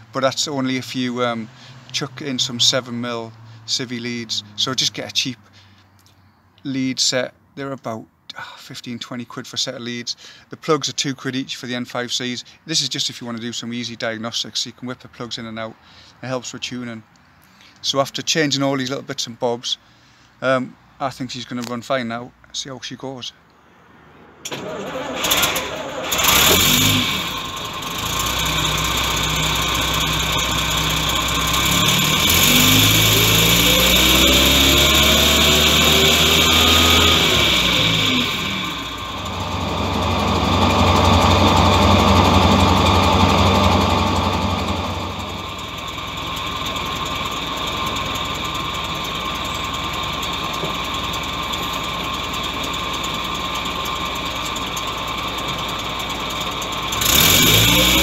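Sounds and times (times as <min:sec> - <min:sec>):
engine idling and revving: 0:24.5 - 0:58.0.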